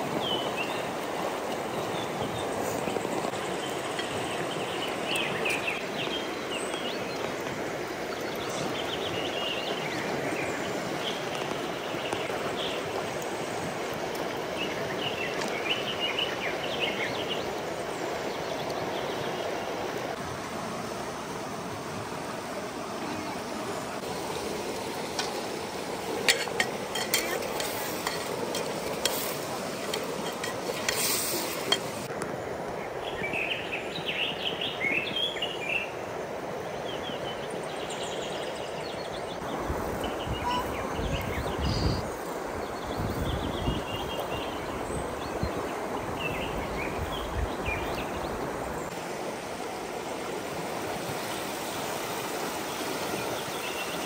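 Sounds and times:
food sizzling in a pot: 25.1s - 32.1s
utensil clinking against pot: 26.2s - 32.0s.

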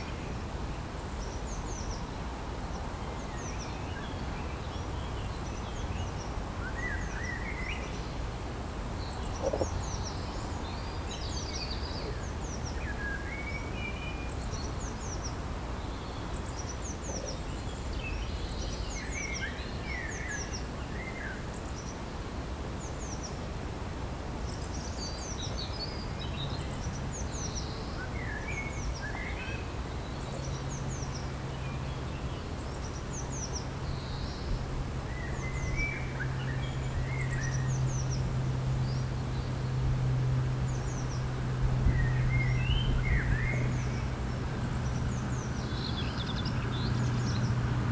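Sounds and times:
low outdoor rumble: 33.4s - 47.9s
birds chirping and singing: 40.7s - 47.6s.

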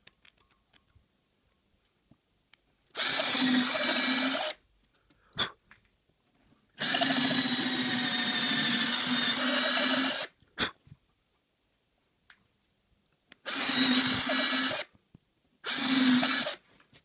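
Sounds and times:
electric drill boring into wood: 3.0s - 4.6s, 6.8s - 10.3s, 13.5s - 14.9s, 15.6s - 16.6s.

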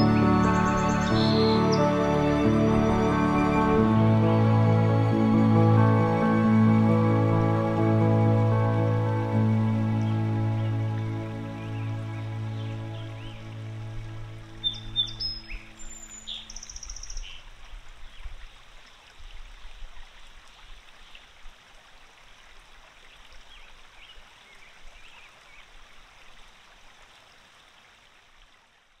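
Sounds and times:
birds chirping: 0.0s - 4.4s, 14.6s - 17.5s
soft music: 0.0s - 17.4s.

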